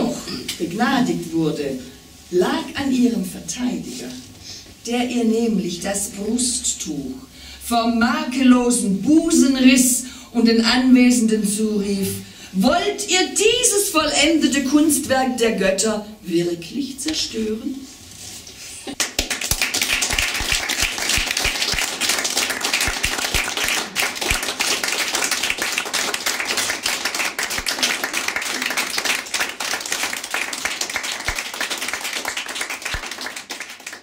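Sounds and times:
hands clapping: 18.9s - 34.0s.

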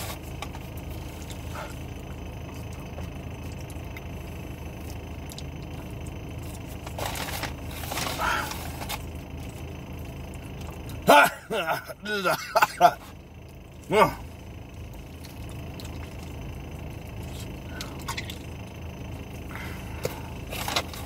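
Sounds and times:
low hum inside car: 0.0s - 21.0s
chewing: 0.3s - 11.0s, 14.8s - 18.6s.

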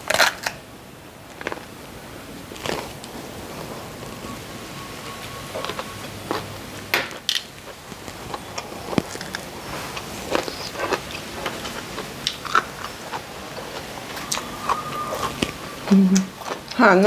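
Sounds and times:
crunching and chewing eggplant: 0.0s - 0.6s, 1.3s - 4.2s, 5.6s - 17.0s.

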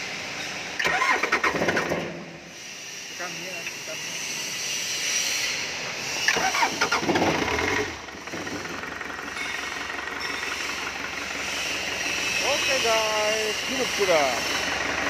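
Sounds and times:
engine starting and idling: 0.6s - 2.4s, 6.2s - 15.0s.

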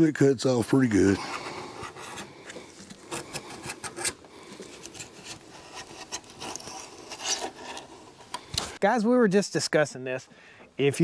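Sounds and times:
blade scraping adhesive: 4.8s - 8.7s.

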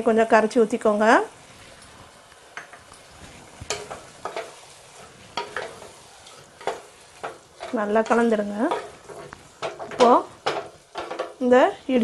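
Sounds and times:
sizzle from pot: 0.0s - 12.0s
wooden spatula scraping a pot: 2.9s - 12.0s.

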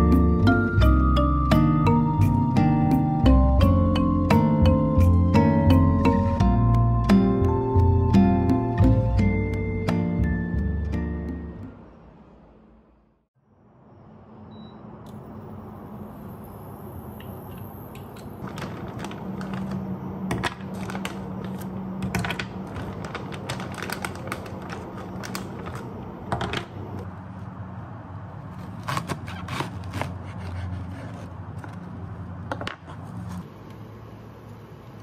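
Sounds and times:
plastic bags rustling: 18.4s - 26.0s
items being set down: 18.4s - 26.7s.

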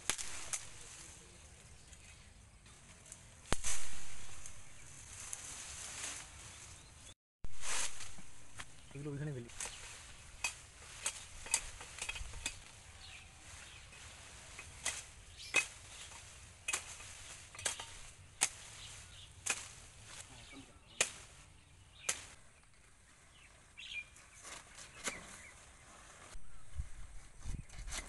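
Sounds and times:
blade chopping branches: 0.0s - 0.9s, 3.0s - 6.3s, 7.5s - 22.7s, 24.3s - 25.6s.

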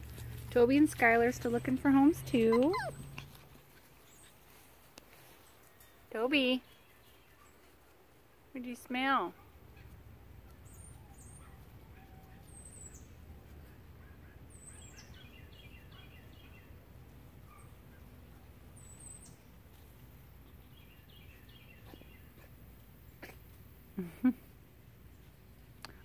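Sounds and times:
low steady background rumble: 0.0s - 5.0s
songbird calls: 14.0s - 16.7s.

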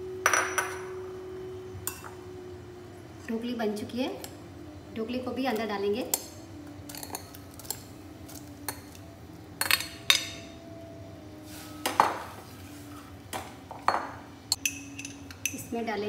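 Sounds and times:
metal spoon scraping and clinking: 6.9s - 10.4s.

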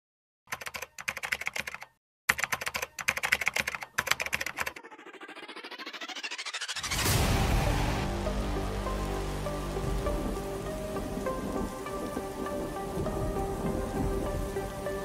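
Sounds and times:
keyboard key clicks: 0.5s - 4.7s
rising swept tone: 4.6s - 15.0s.

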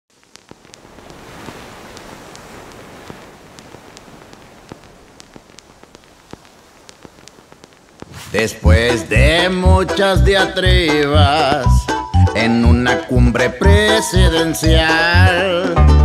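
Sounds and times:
crackles and pops: 0.0s - 12.1s
steady hiss: 0.1s - 11.8s.

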